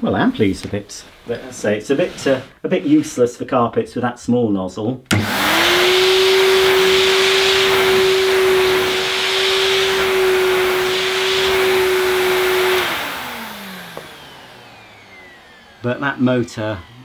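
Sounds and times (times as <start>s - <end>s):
vacuum cleaner motor whine: 5.1s - 17.0s
vacuum air rush: 5.2s - 17.0s.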